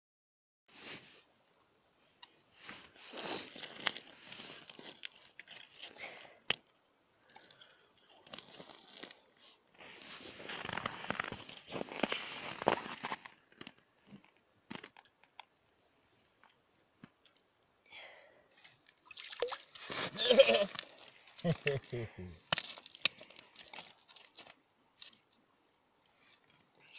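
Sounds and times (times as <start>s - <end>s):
ice crunching: 3.0s - 5.9s, 7.4s - 13.8s, 19.1s - 25.2s
winter clothing rustling: 8.5s - 13.4s.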